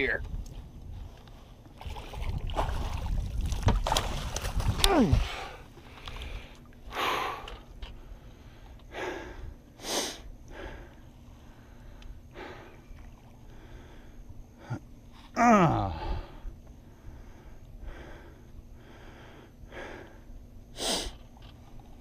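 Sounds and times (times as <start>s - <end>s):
person breathing hard: 4.9s - 12.9s, 13.5s - 21.2s
person groaning: 14.7s - 16.3s.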